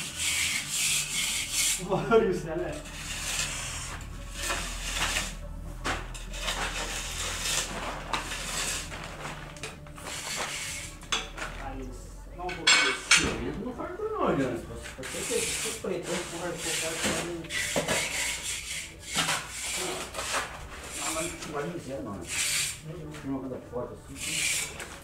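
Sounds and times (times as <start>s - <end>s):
trowel scraping mortar on concrete: 2.7s - 5.4s, 15.0s - 21.4s, 24.2s - 25.0s.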